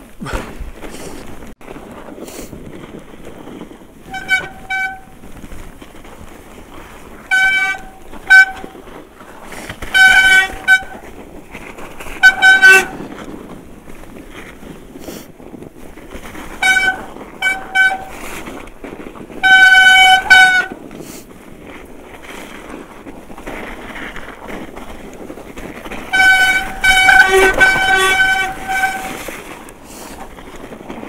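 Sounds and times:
tyres rolling through snow: 0.0 - 31.0
bike brakes squealing: 4.1 - 5.2, 7.3 - 8.8, 9.8 - 11.1, 12.1 - 13.0, 16.6 - 18.3, 19.4 - 20.7, 26.1 - 29.3.

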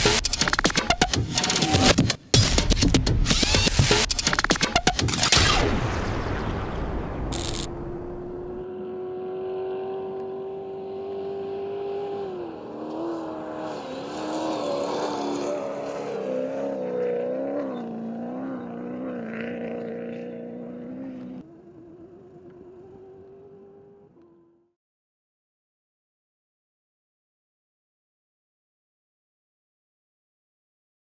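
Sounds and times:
rising tone: 3.2 - 8.7
vehicle engine revving: 7.3 - 24.7.

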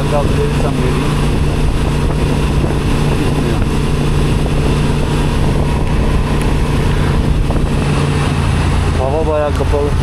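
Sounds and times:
motorcycle engine running: 0.0 - 10.0
wind noise: 0.0 - 10.0.

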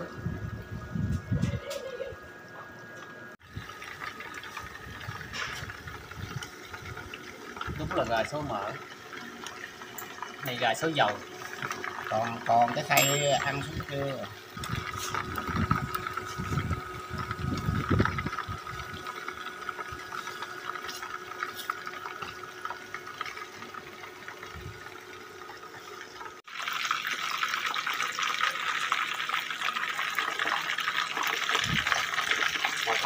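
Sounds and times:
chicken sizzling in oil: 18.1 - 33.0.

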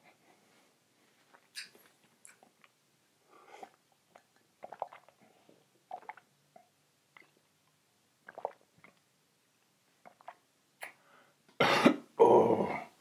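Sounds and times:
loud coughs: 11.6 - 12.1.

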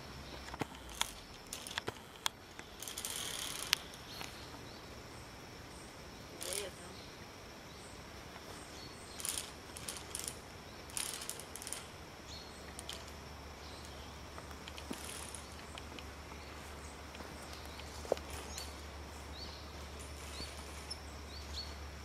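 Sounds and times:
metallic carabiner clicks and rattles: 0.5 - 4.0, 6.4 - 6.8, 9.2 - 12.0, 12.7 - 13.2, 14.6 - 16.1.

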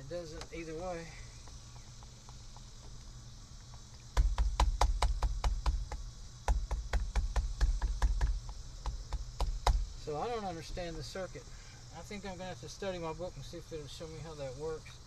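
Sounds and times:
sharp clicks and knocks: 3.7 - 9.9.

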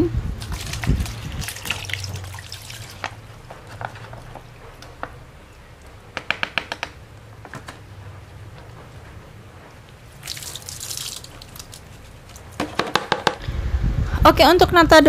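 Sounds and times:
liquid trickling and dripping: 0.4 - 3.7, 10.1 - 12.6.

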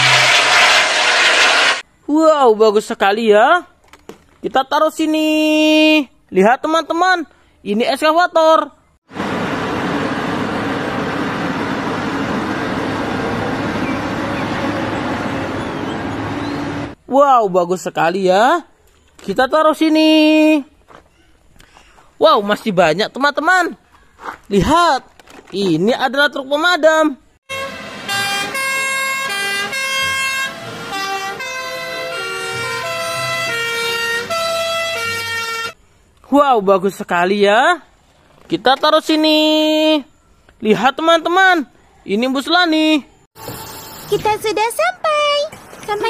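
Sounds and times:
excavator diesel engine running: 9.1 - 17.0
fire engine two-tone sirens: 27.5 - 35.8.

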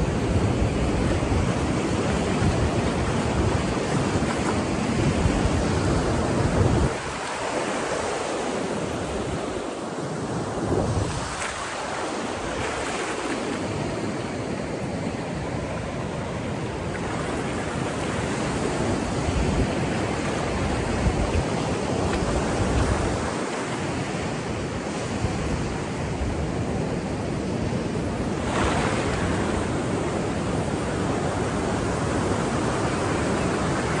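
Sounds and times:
wind rumbling on microphone: 0.0 - 8.2, 8.8 - 14.0, 16.6 - 23.4
surf washing up a beach: 0.0 - 34.0.

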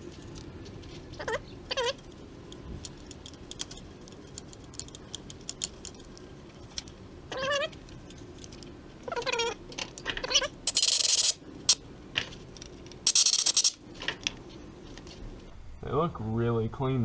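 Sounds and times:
dog whining: 1.2 - 2.0, 7.3 - 7.8, 9.0 - 9.6
wire brush scratching: 10.6 - 11.8, 13.0 - 13.8.

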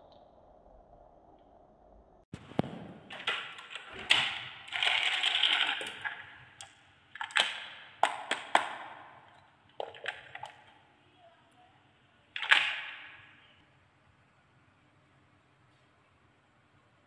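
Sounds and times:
plastic toy truck rattling: 3.1 - 8.6.

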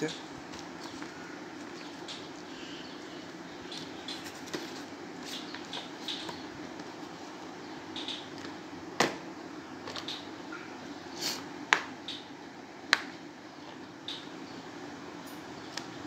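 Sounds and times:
steady low hum: 0.0 - 16.0
soft taps and rustles: 0.4 - 2.4, 3.7 - 7.4.

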